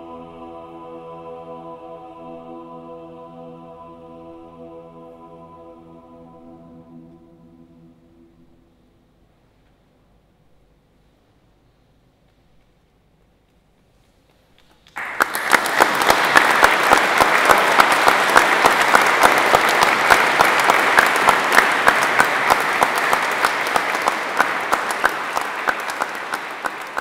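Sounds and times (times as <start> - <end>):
audience applauding: 15.0 - 27.0.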